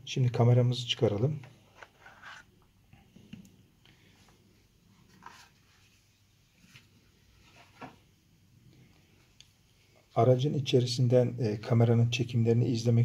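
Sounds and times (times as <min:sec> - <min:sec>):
soft scrapes of cardboard: 0:01.6 - 0:02.5, 0:04.9 - 0:08.0.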